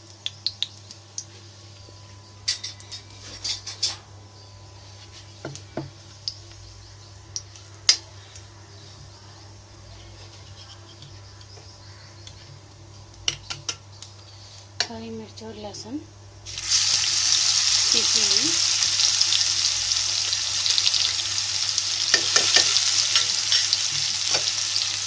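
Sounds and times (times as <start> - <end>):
steady low hum: 0.0 - 17.2.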